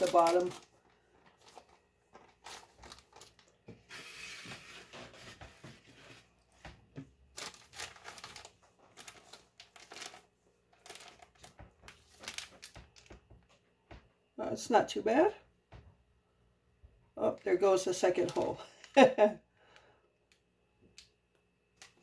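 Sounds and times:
plastic bag crinkling: 0:00.0 - 0:03.7, 0:07.2 - 0:13.3, 0:17.9 - 0:19.1, 0:21.8 - 0:22.0.

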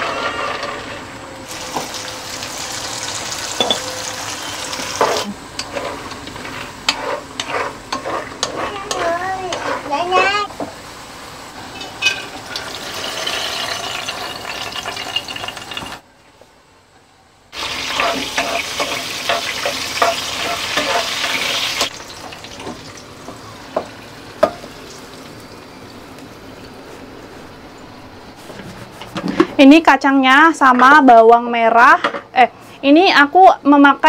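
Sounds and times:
wooden spatula scraping: 0:00.0 - 0:02.0, 0:04.5 - 0:10.5, 0:17.6 - 0:21.6, 0:28.2 - 0:29.6
hot oil sizzling in a wok: 0:01.5 - 0:16.0, 0:17.5 - 0:25.6.

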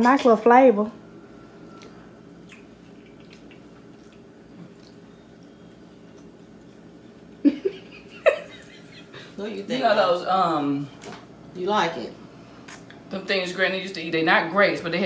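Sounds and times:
wet chewing and mouth clicks: 0:01.8 - 0:07.0.

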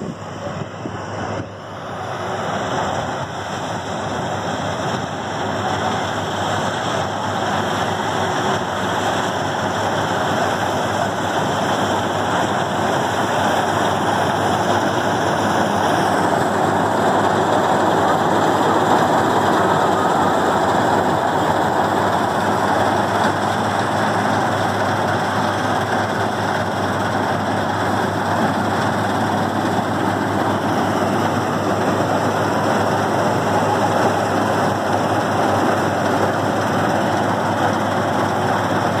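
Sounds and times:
combine harvester engine drone: 0:00.0 - 0:39.0.

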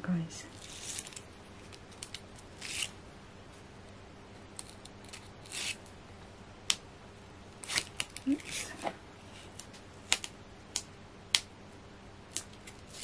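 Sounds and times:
crisp crafting rasps: 0:00.5 - 0:03.0.

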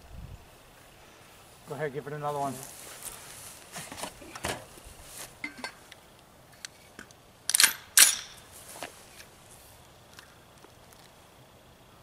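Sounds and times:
rifle charging handle clacks: 0:07.5 - 0:08.4.

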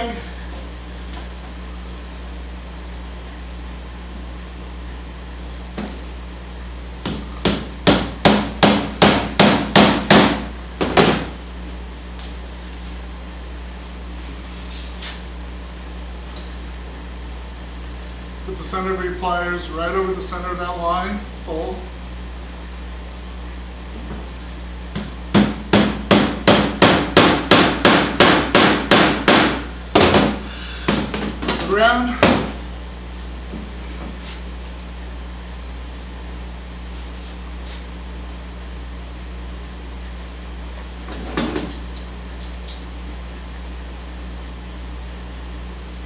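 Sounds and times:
hammer striking wooden frame: 0:07.0 - 0:11.3, 0:25.0 - 0:32.6.

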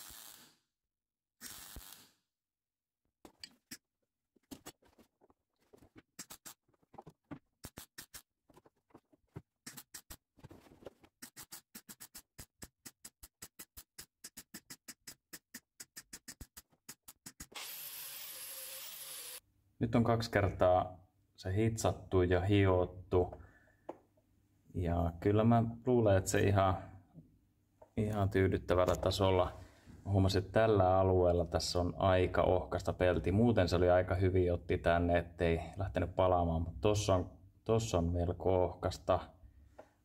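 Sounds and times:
welder crackling bursts: 0:00.0 - 0:00.6, 0:01.4 - 0:02.2
angle grinder grinding metal: 0:17.6 - 0:19.4.

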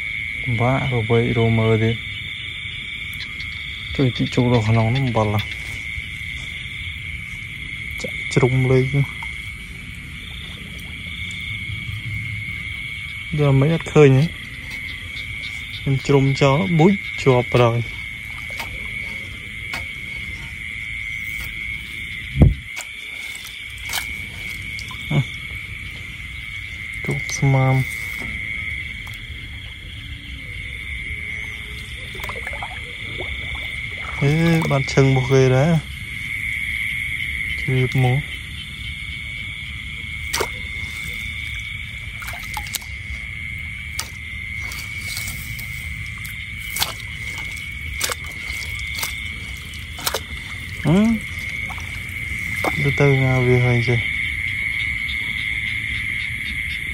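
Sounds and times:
night insects chorus: 0:00.0 - 0:56.9
low thump from water: 0:22.4 - 0:22.9, 0:32.0 - 0:34.9, 0:46.7 - 0:53.0.

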